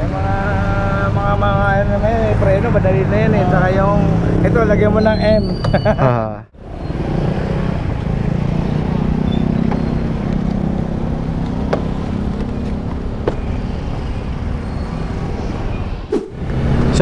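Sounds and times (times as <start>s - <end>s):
scooter engine running: 7.7s - 13.4s.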